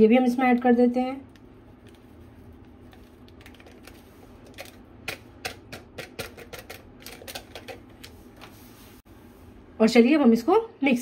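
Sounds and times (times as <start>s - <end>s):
kitchen items clicking and tapping: 3.3s - 8.2s.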